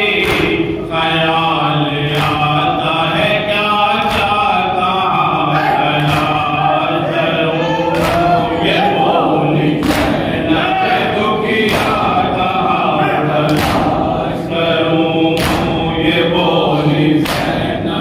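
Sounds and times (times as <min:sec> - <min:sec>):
men chanting a lament: 0:00.0 - 0:18.0
hands slapping chests: 0:00.2 - 0:00.7, 0:06.0 - 0:06.5, 0:07.9 - 0:08.5, 0:09.8 - 0:10.3, 0:13.4 - 0:14.1, 0:15.4 - 0:15.8, 0:17.2 - 0:17.7.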